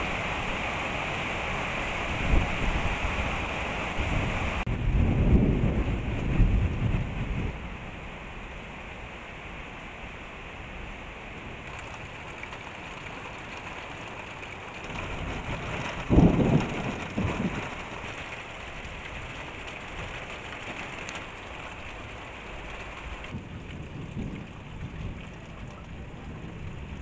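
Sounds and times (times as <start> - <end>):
steady rain: 0.0 - 27.0
thunder crack and rumble: 4.1 - 8.1, 11.4 - 27.0.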